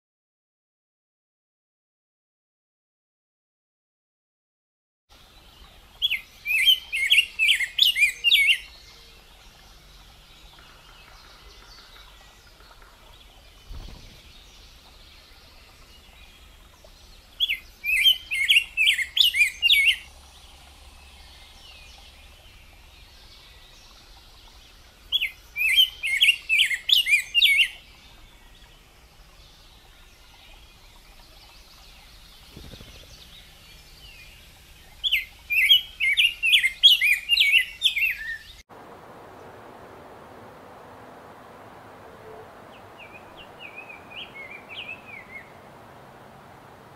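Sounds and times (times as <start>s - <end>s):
bird singing whistled notes: 6.0s - 9.2s, 17.4s - 20.1s, 25.1s - 28.4s, 30.2s - 38.6s, 42.2s - 45.5s.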